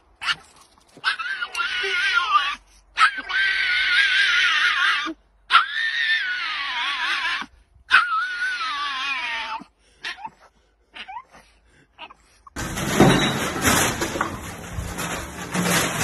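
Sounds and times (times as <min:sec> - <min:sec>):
small dog wailing and yelping: 0:00.2 - 0:12.6.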